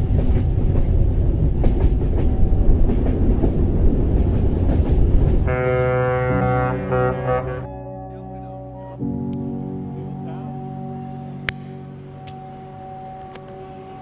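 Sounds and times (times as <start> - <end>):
train rumbling on rails: 0.0 - 7.7
held chord of pitched tones: 5.5 - 13.2.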